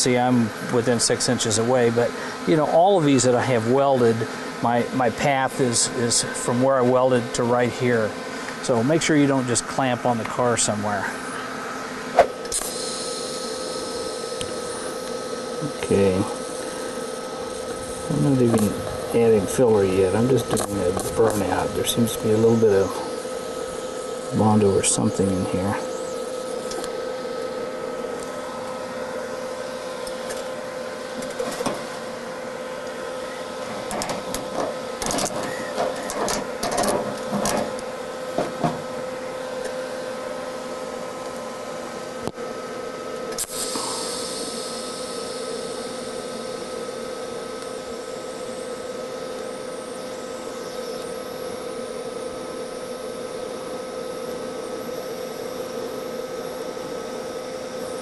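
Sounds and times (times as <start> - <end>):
welding arc buzzing: 0.0 - 58.0
hiss: 12.6 - 14.4, 43.4 - 46.4.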